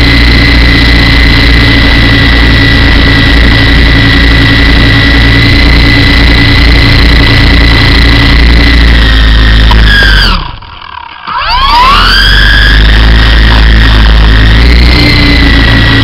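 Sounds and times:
high-pitched motor whine: 0.0 - 16.0
rotor blades throbbing: 0.0 - 16.0.

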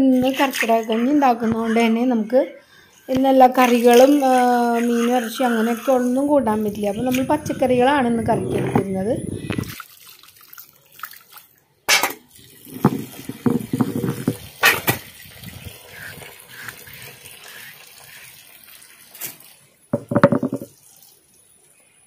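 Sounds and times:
water splashing on stone: 12.4 - 18.2
stone knocks: 12.7 - 14.9, 20.0 - 20.7.

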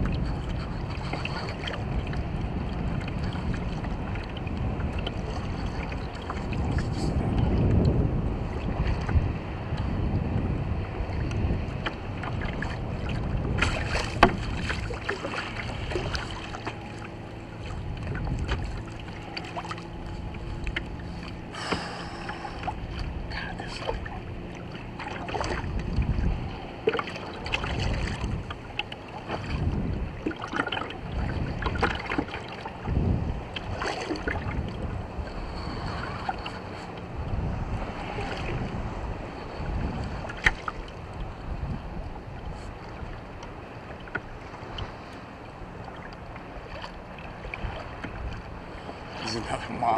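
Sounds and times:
low steady hum: 0.0 - 49.9
water slapping against kayak hull: 0.0 - 49.9
wind on microphone: 0.0 - 49.9.

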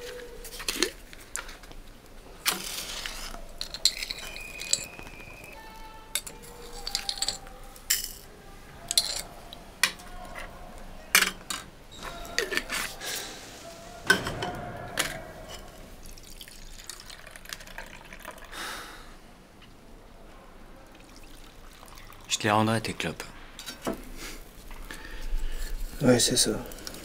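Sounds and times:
sharp clinks and knocks: 3.6 - 5.3, 14.1 - 15.9
liquid dripping: 16.0 - 18.6, 20.9 - 22.5.

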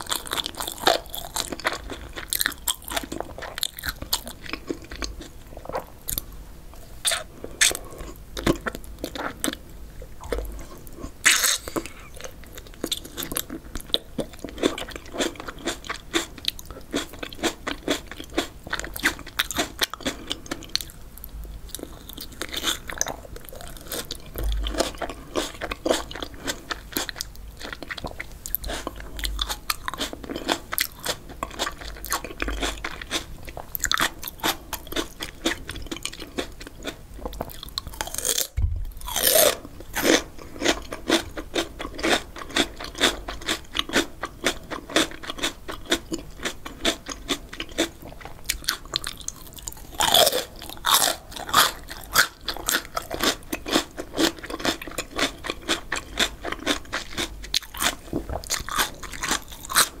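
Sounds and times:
crunching and chewing cucumber: 0.0 - 6.3, 7.0 - 60.0.

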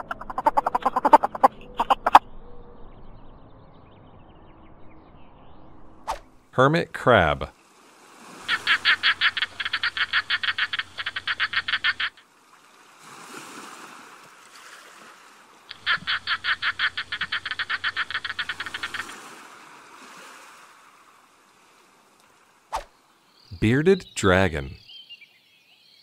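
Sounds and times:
hermit crab pulsed chirps: 8.5 - 12.2, 15.7 - 19.1.

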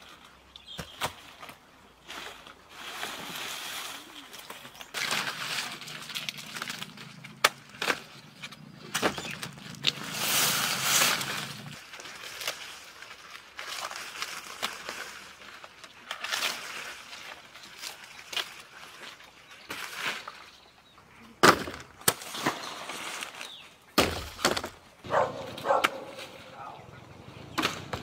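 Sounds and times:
cane leaves rustling: 0.0 - 21.4, 22.0 - 28.0
machete striking sugarcane: 24.0 - 24.7.

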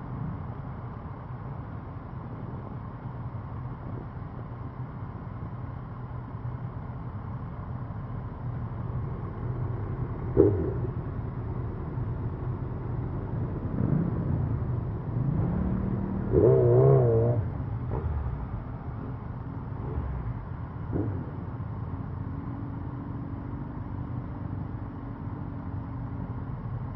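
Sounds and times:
motorcycle engines rumbling: 0.0 - 26.9
engine revving: 10.3 - 11.0, 13.6 - 18.5, 19.8 - 21.4.

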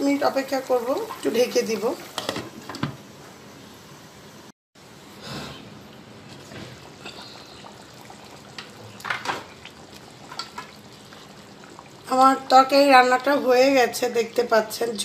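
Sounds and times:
curry simmering with bubbling pops: 0.4 - 3.0, 5.9 - 14.8.

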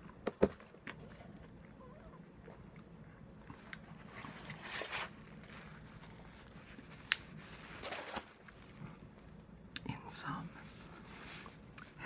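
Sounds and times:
rustling scrapes: 3.8 - 8.8, 10.6 - 11.6.

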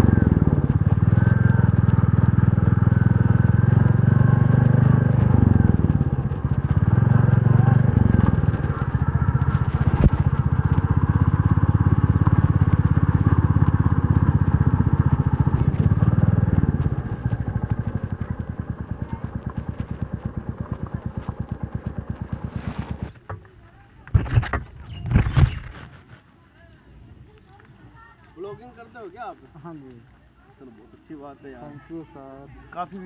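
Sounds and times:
motorcycle engine running: 0.0 - 25.9.

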